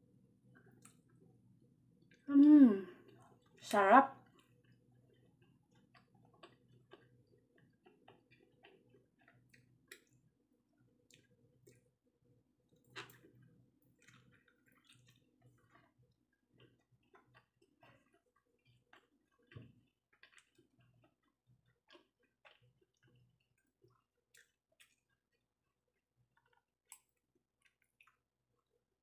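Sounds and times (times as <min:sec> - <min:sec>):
person chewing: 0:04.3 - 0:11.9, 0:12.7 - 0:28.8.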